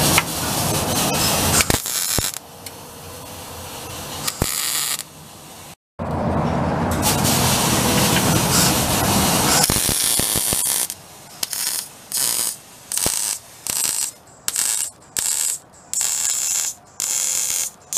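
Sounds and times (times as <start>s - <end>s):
steady loud noise: 0.0s - 17.9s
welder arc crackling: 1.5s - 2.4s, 4.2s - 5.1s, 7.8s - 17.9s.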